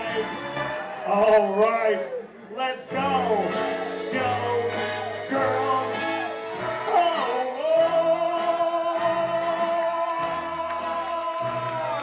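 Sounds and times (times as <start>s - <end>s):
backing music: 0.0s - 12.0s.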